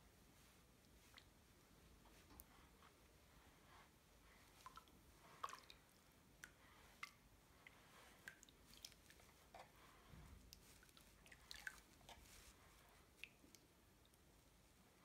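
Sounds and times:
water splashing in a basin: 4.6 - 5.9, 10.8 - 12.0.

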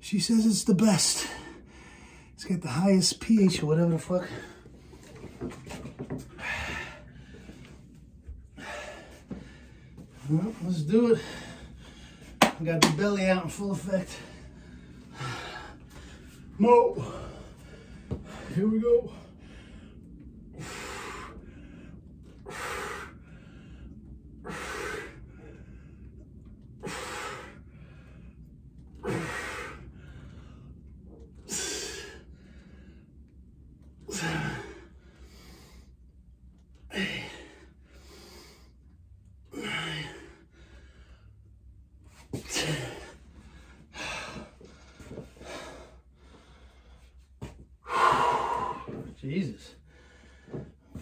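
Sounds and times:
man breathing forcefully: 0.8 - 2.8, 4.2 - 12.7, 13.6 - 33.2, 34.0 - 36.1, 36.9 - 38.8, 39.4 - 49.2, 49.8 - 51.0
man grunting: 34.1 - 34.8, 42.5 - 43.1.

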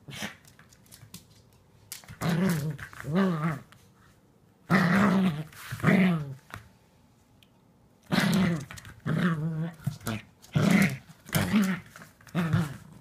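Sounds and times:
small dog growling in play: 2.1 - 3.7, 4.7 - 6.4, 8.0 - 13.0.

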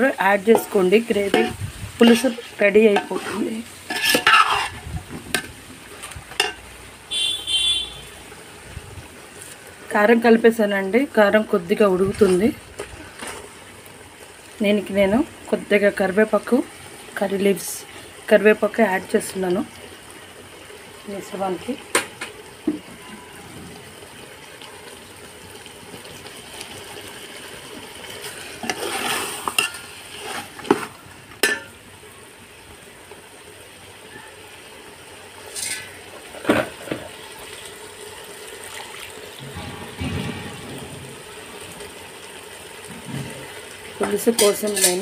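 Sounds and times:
curry sizzling: 0.0 - 45.0
metal spatula scraping pot: 0.5 - 4.8, 28.2 - 31.6, 35.5 - 36.8, 44.2 - 45.0.

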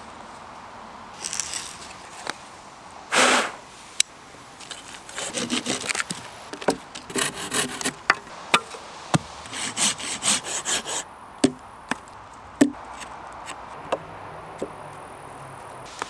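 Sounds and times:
hand saw cutting log: 5.1 - 6.2, 7.1 - 11.0
sharp wooden knocks: 11.4 - 12.8.

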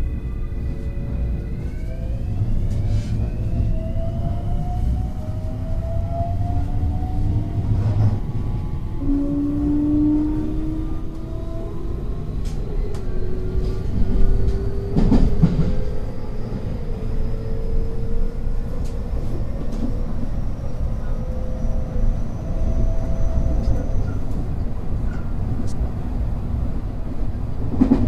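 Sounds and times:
wheels rumbling on rail: 0.0 - 28.0
rail clicks: 12.3 - 17.0, 27.6 - 28.0.

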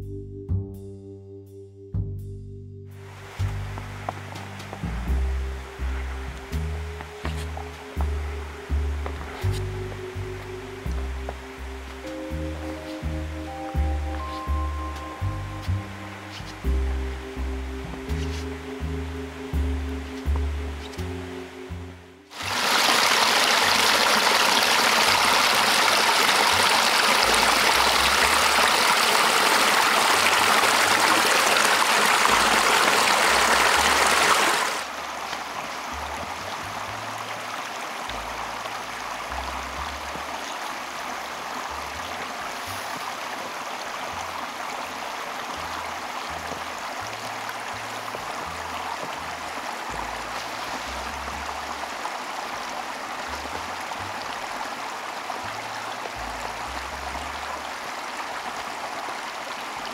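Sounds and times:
creek water rushing: 3.0 - 59.9.

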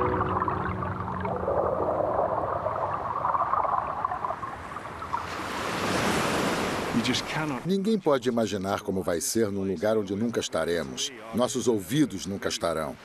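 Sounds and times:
underwater churning and gurgle: 0.0 - 6.9.

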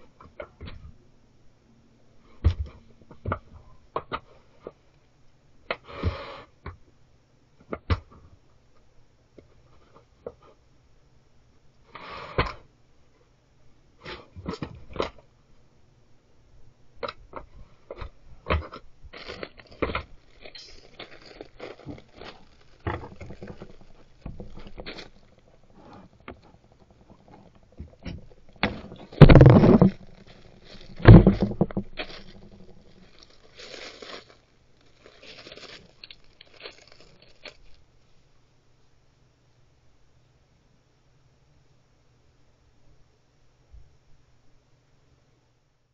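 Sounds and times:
bear scraping and crunching: 17.9 - 37.8
faint scuffling: 17.9 - 37.8.

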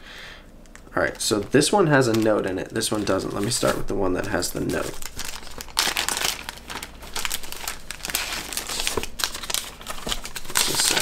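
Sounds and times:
packaging crinkling: 0.7 - 11.0.

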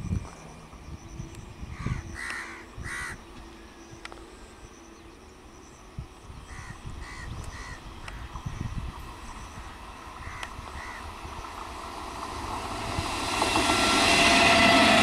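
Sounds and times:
train rumble: 0.0 - 15.0
crow cawing: 1.7 - 3.2, 6.5 - 8.3, 10.2 - 11.1.

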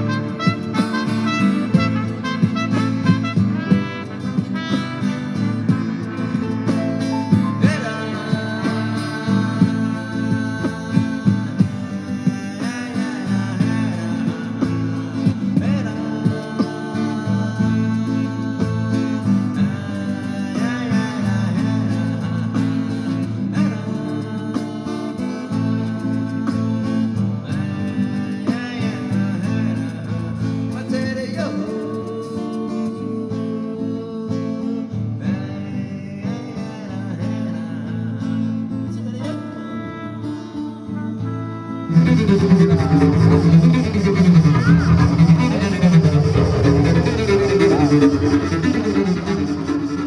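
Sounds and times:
live instrumental music: 0.0 - 19.5, 39.2 - 50.0
man singing: 0.0 - 50.0.

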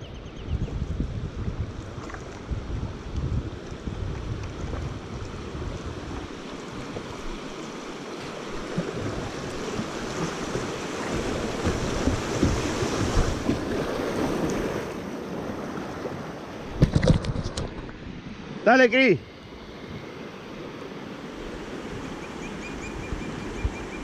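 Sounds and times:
wind buffeting microphone: 0.0 - 7.5, 8.6 - 14.9
river water rushing: 3.6 - 16.9.

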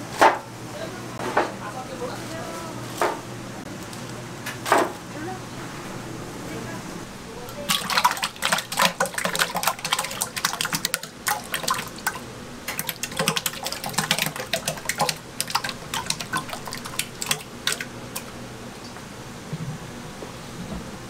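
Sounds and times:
eggs splashing into metal pot: 7.6 - 18.4.

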